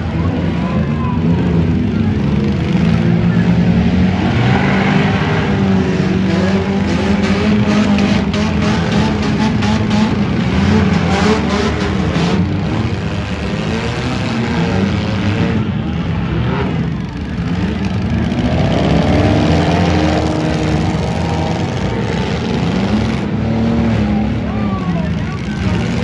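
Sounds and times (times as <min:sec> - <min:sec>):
car engines revving: 0:00.0 - 0:26.0.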